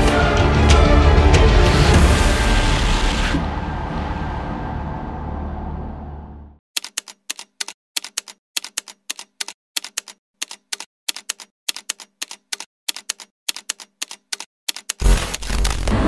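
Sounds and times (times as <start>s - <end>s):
typewriter key clacks: 6.8s - 15.0s.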